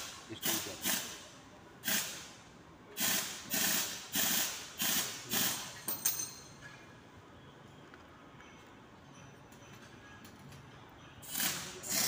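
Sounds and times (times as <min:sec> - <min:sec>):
hissing spray blasts: 0:01.8 - 0:02.3, 0:03.0 - 0:05.6.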